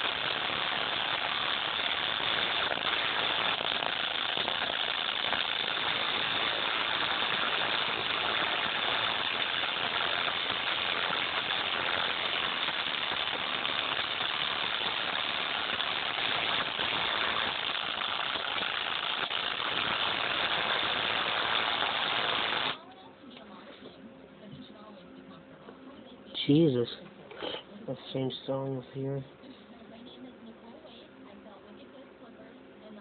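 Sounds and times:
harshly distorted buzz: 0.0s - 22.8s.

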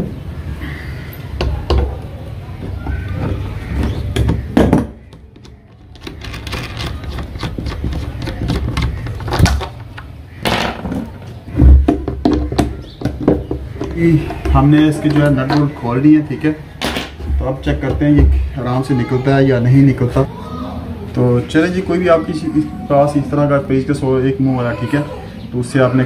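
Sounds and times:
metal parts clicking and clinking: 5.4s - 10.0s.

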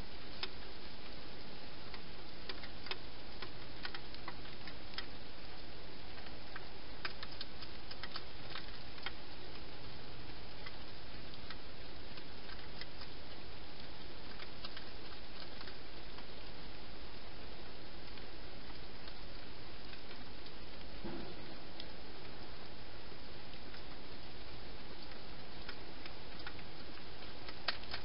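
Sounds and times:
background hiss: 0.0s - 28.0s
hedgehog crunching dry food: 6.2s - 9.7s.

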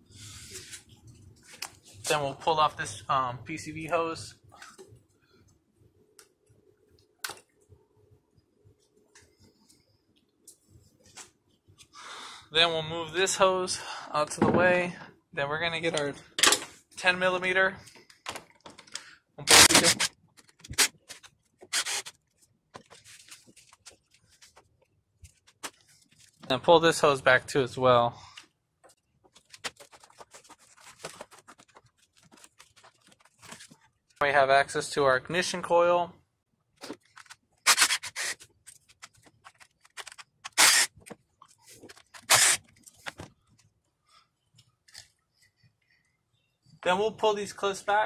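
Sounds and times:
plastic and rubber hoses rubbing: 28.9s - 34.2s, 36.8s - 43.8s.

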